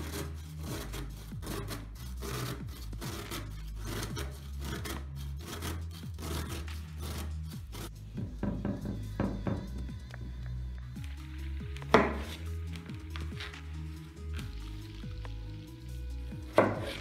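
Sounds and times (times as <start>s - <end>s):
radish rasping on a grater: 0.0s - 7.9s, 15.8s - 17.0s
background music with bass line: 0.0s - 17.0s.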